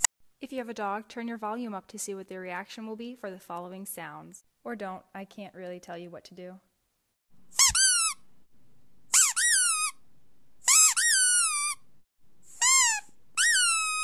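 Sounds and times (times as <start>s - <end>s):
high squeaky whining call: 7.5s - 8.2s, 9.1s - 10.0s, 10.6s - 11.9s, 12.5s - 14.0s.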